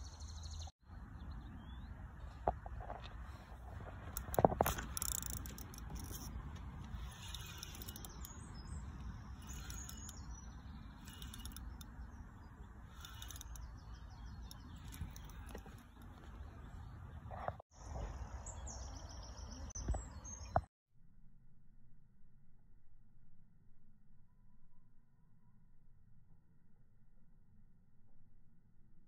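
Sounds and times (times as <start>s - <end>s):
birds chirping: 0.0s - 20.7s
rod and reel clicking: 3.3s - 16.8s.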